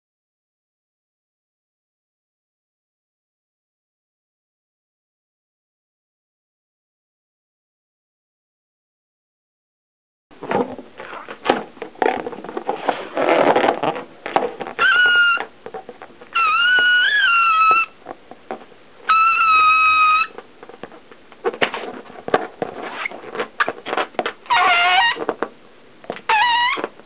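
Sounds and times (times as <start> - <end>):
rustling and clattering: 10.3 - 16.4, 18.0 - 18.8, 20.3 - 24.5
balloon squealing: 12.8 - 14.0, 14.7 - 15.5, 16.3 - 18.0, 19.1 - 20.4, 22.8 - 25.3, 26.2 - 26.9.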